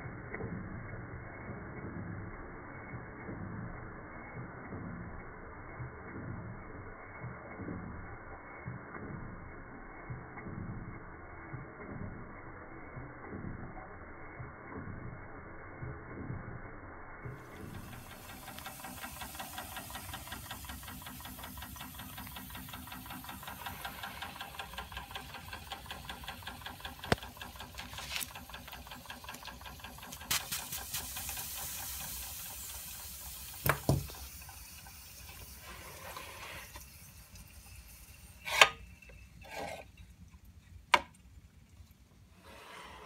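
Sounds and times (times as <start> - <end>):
steam hissing: 17.2 - 39.6
toy steam engine chuffing: 17.2 - 39.9.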